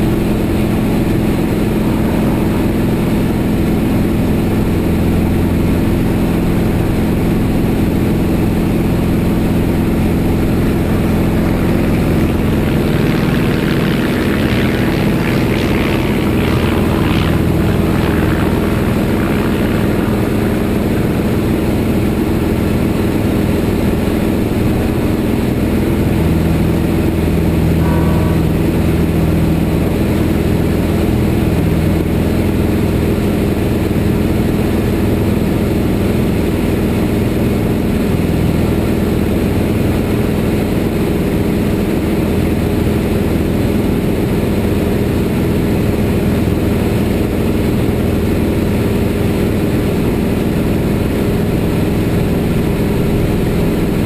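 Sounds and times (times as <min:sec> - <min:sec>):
airplane engine droning: 0:00.0 - 0:54.0
brief high tone: 0:27.7 - 0:29.9.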